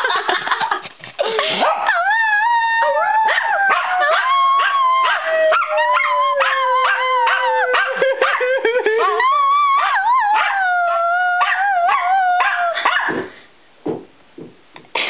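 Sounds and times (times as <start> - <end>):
dog howling: 1.6 - 12.8.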